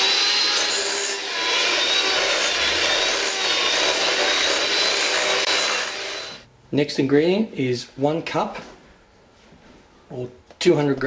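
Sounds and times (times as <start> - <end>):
electric hand beater whining: 0.0 - 6.4.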